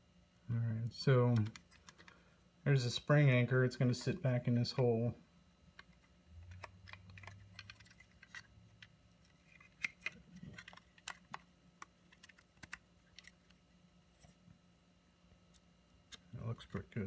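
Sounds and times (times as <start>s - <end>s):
faint steady hum: 0.0s - 17.0s
plastic parts clicking: 5.8s - 13.5s.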